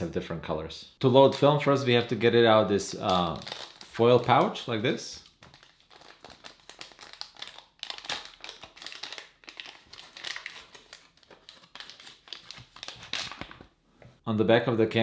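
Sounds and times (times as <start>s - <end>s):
foil pouch crinkling: 3.2s - 4.6s, 5.3s - 13.7s.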